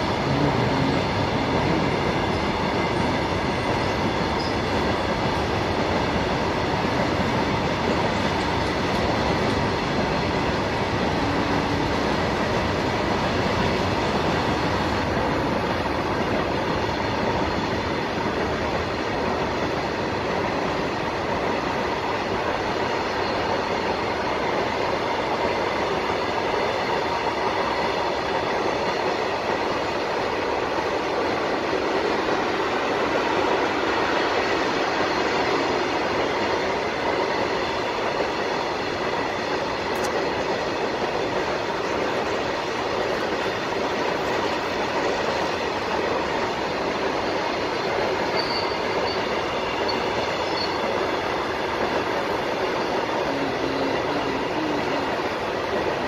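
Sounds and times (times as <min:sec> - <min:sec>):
train wheels rumbling on rails: 0:00.0 - 0:56.0
thin ringing tone: 0:04.3 - 0:04.7, 0:48.2 - 0:50.9.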